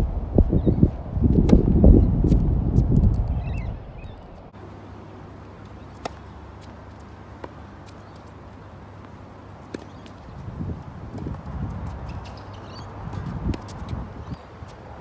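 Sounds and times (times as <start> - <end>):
low rumble: 0.0 - 4.5
tennis ball bouncing: 5.7 - 10.3, 11.1 - 14.8
racket hitting tennis ball: 5.9 - 8.4, 9.0 - 10.2, 11.2 - 14.0
shoes scuffing on hard court: 5.9 - 14.8.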